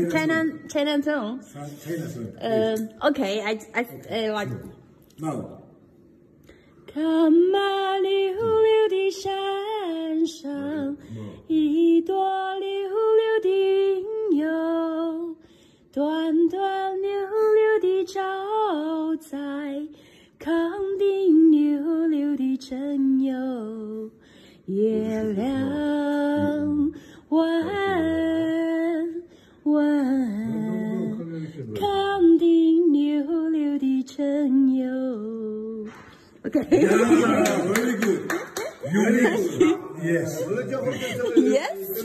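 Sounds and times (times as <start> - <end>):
woman singing unaccompanied: 2.4 - 3.2, 6.9 - 35.9.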